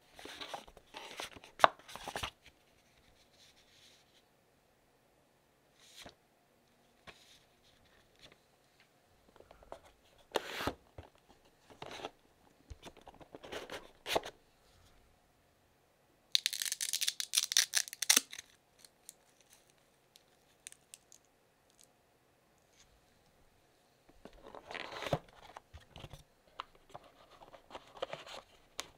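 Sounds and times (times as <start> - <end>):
strap ripping open: 16.4 - 18.9.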